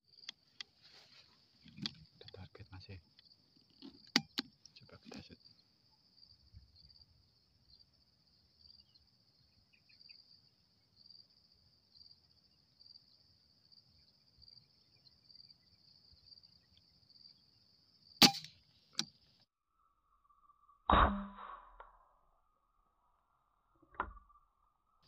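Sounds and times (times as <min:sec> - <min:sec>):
high-pitched insect chorus: 0:01.9 - 0:18.2
air rifle shot crack: 0:18.2 - 0:18.5, 0:20.9 - 0:21.8.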